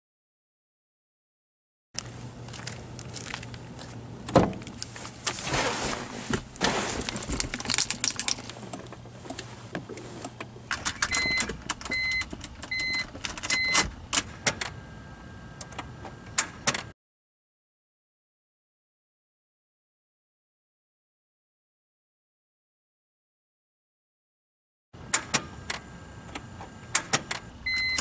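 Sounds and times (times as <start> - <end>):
dashboard warning chime beeping: 11.0 - 13.9, 27.6 - 28.0.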